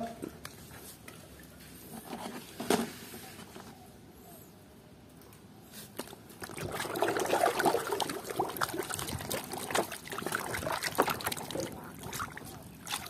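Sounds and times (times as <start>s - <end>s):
water trickling and splashing: 6.0s - 13.0s.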